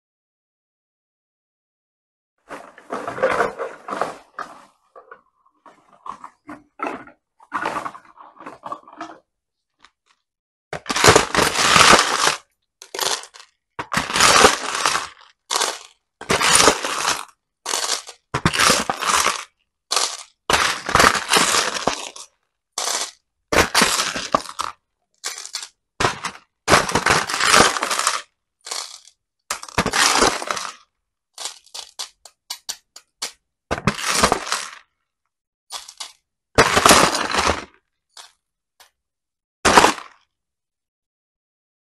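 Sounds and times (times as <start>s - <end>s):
plastic beads rattling and clinking: 11.0s - 30.8s, 31.4s - 34.8s, 35.7s - 36.2s.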